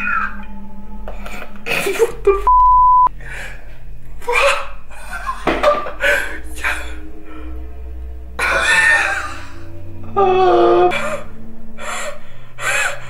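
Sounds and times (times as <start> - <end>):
quiet background music: 0.0 - 13.0
electronic beep: 2.4 - 3.1.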